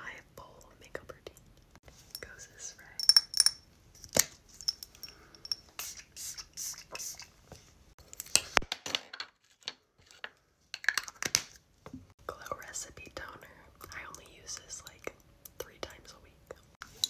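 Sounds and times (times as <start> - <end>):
spray bottle hissing: 5.8 - 7.3.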